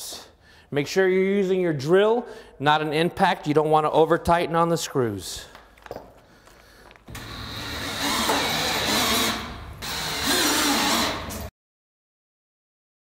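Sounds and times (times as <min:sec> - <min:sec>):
cordless drill driving screws into metal: 0:07.1 - 0:11.5.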